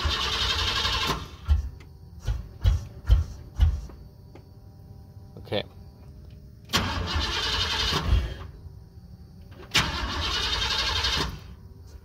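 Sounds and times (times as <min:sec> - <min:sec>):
engine cranking on starter: 0:00.0 - 0:03.6, 0:06.6 - 0:08.6, 0:09.4 - 0:11.7.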